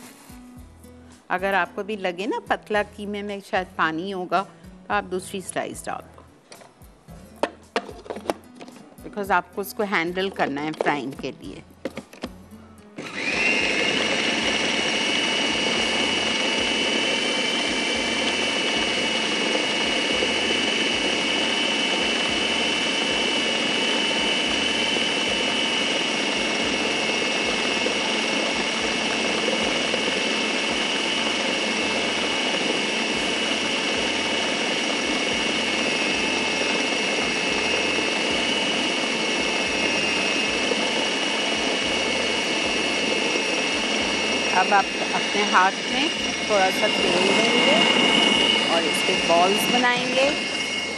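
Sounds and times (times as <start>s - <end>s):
electric food chopper whine: 13.0s - 50.9s.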